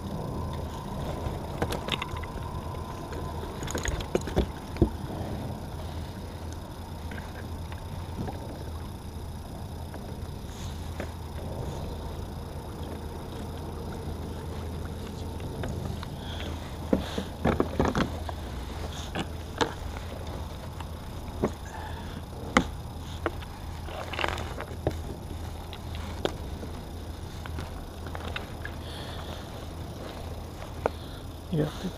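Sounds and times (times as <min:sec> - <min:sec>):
steady low hum: 0:00.0 - 0:31.9
fishing gear clattering in kayak: 0:03.2 - 0:05.0.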